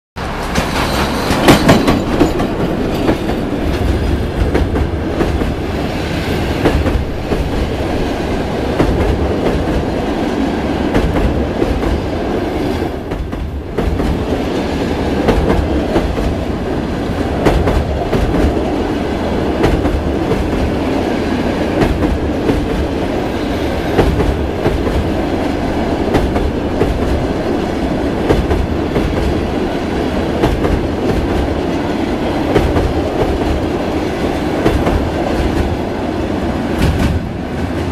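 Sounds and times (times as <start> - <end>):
wheels clicking over rail joints: 0.2 - 5.6
train wheels rumbling: 0.2 - 37.9.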